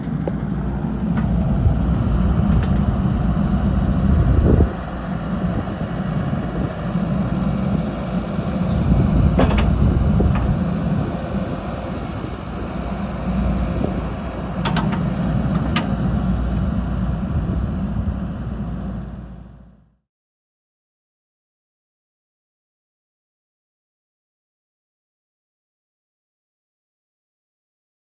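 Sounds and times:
excavator diesel engine running: 0:00.0 - 0:19.9.

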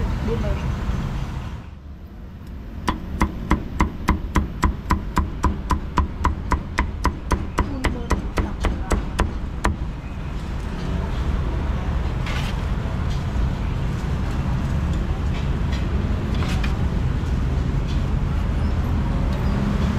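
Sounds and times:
cleaver chopping on wooden block: 0:02.8 - 0:09.8.

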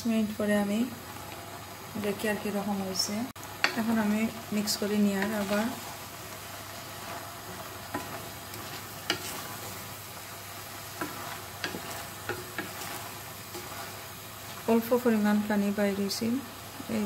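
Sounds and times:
food hissing on flame: 0:00.8 - 0:17.0
spatula tapping and scraping pot: 0:03.6 - 0:04.0, 0:05.1 - 0:05.8, 0:07.8 - 0:09.8, 0:10.8 - 0:14.0.

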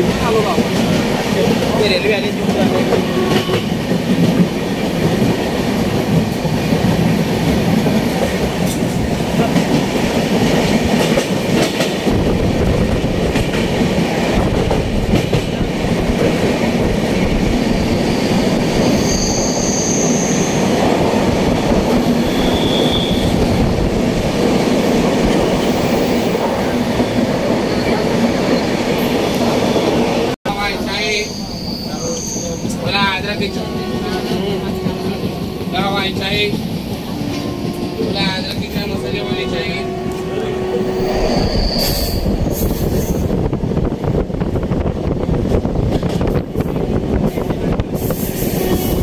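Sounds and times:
train wheels rumbling on rails: 0:00.0 - 0:49.0
high-pitched squeals: 0:17.8 - 0:20.7, 0:31.0 - 0:32.8, 0:39.4 - 0:43.2.

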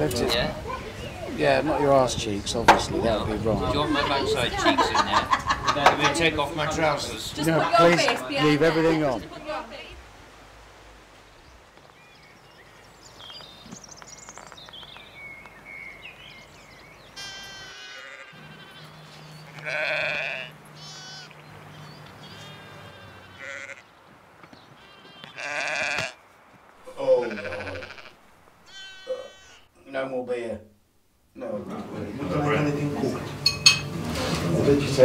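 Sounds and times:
birds chirping: 0:00.0 - 0:10.0, 0:11.0 - 0:30.2
sheep bleating: 0:17.2 - 0:21.5, 0:22.2 - 0:23.9, 0:24.7 - 0:26.2, 0:26.8 - 0:29.8.

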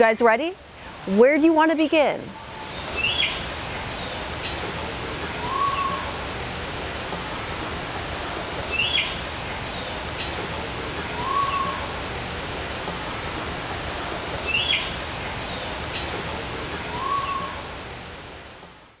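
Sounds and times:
steady rushing noise: 0:00.0 - 0:19.0
bird chirp and whistle: 0:05.4 - 0:06.1, 0:11.2 - 0:11.8, 0:16.9 - 0:17.6.

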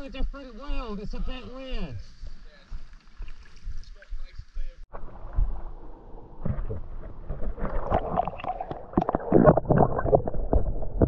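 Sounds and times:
underwater gurgling and bubbling: 0:04.9 - 0:11.0.

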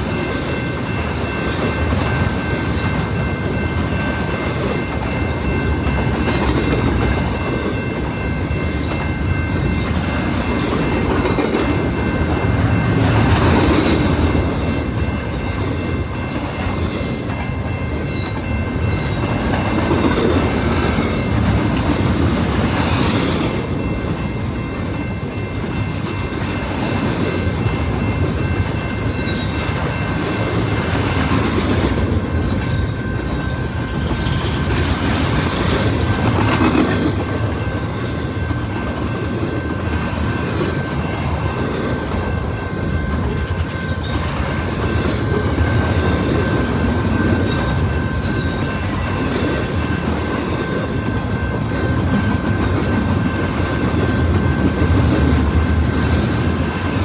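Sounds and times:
high-pitched wheel ringing: 0:00.0 - 0:36.2
freight train rolling past: 0:00.0 - 0:57.0.

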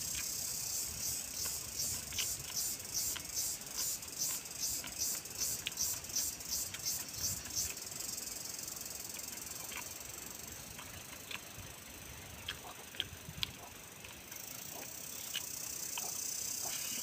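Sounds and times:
insect chorus buzzing: 0:00.0 - 0:11.0, 0:13.8 - 0:17.0
chewing and eating smacks: 0:01.3 - 0:07.8, 0:09.1 - 0:10.0, 0:10.6 - 0:11.5, 0:12.4 - 0:17.0.

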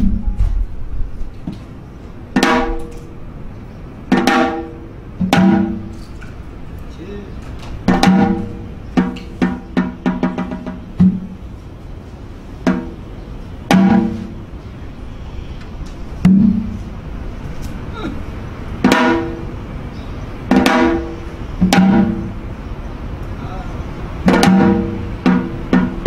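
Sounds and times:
hourglass drum strokes: 0:24.2 - 0:26.0.

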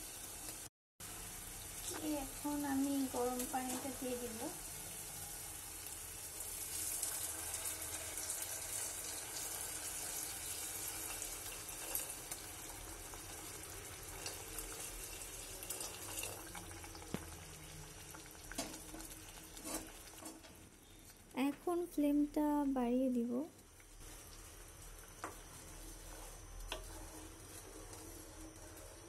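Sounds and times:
water pouring into a pan: 0:04.7 - 0:20.3.

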